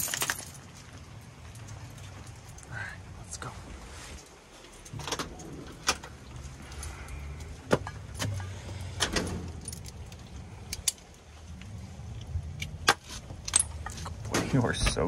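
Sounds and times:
dog collar chain jingling: 0.0 - 0.6
low steady rumble: 0.0 - 15.0.

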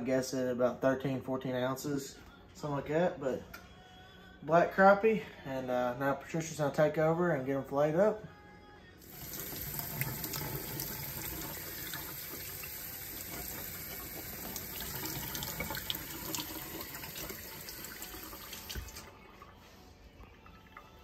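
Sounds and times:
faucet running into sink: 9.0 - 19.6.

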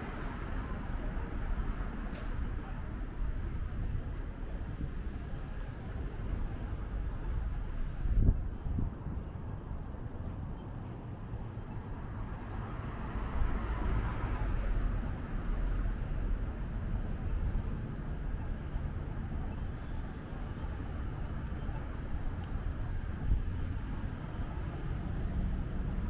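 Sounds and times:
city street traffic rumble: 0.0 - 26.0.

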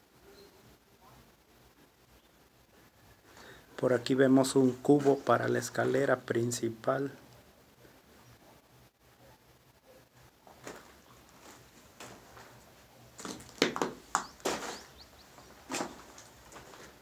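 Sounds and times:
rubble crunching: 10.4 - 17.0
footsteps on concrete floor: 10.5 - 17.0.

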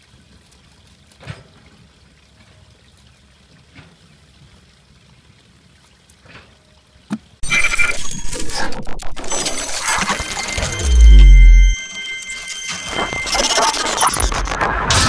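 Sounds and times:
water trickling into a bucket: 0.0 - 7.4.

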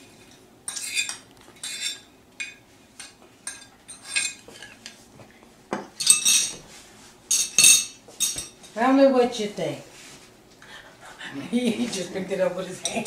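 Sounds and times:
fork clinking on glass dishes: 0.7 - 5.0, 6.0 - 6.6, 7.3 - 8.6.

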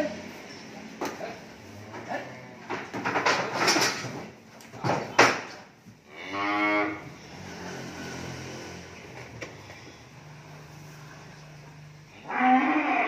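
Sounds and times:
cow mooing: 6.1 - 7.1, 12.2 - 13.0.

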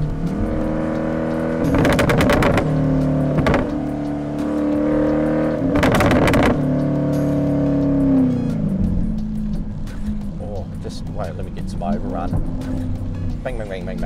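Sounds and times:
car engine running: 0.0 - 14.0
exhaust crackling pops: 1.7 - 3.8, 5.7 - 6.6.

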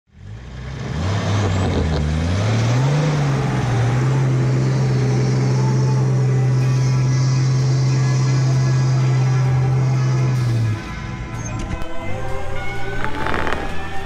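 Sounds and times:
engine revving under load: 0.1 - 14.0
spinning tyres and thrown sand: 0.2 - 5.9.

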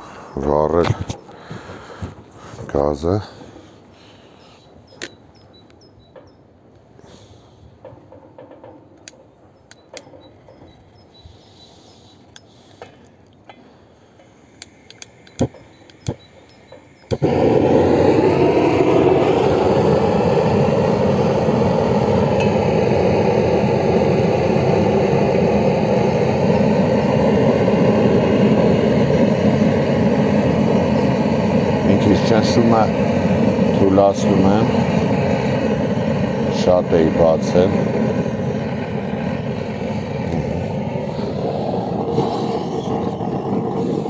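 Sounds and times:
gas torch rushing hiss: 13.9 - 44.0
sharp clicks: 14.2 - 17.3.

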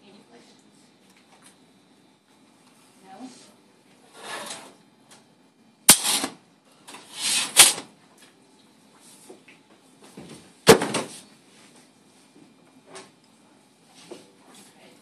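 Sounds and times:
metal tray sliding: 4.1 - 4.8.

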